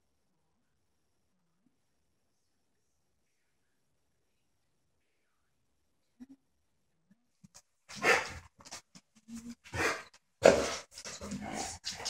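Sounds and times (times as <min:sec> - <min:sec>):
dog barking: 0:07.9 - 0:08.4, 0:09.7 - 0:10.8.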